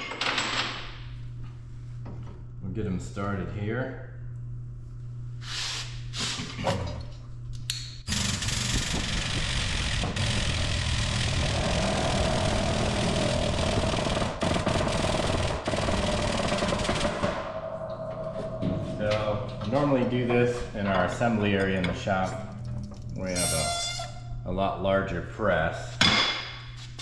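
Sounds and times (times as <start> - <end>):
hydraulic pump buzzing rattle: 8.1 - 15.2
steady whine: 8.1 - 25.5.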